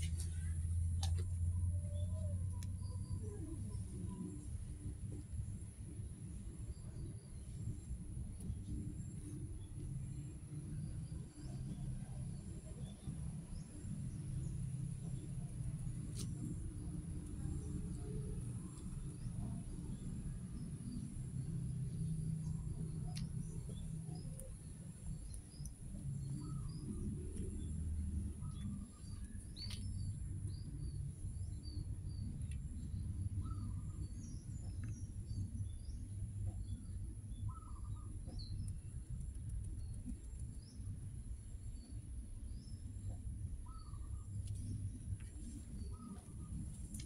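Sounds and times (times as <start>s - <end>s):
steady low rumble: 0.0s - 47.0s
small birds chirping: 9.0s - 41.0s, 41.6s - 47.0s.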